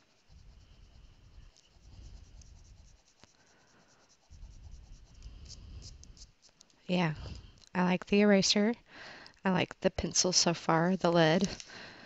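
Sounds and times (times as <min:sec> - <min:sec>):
pencil scratching on paper: 0:00.0 - 0:06.6.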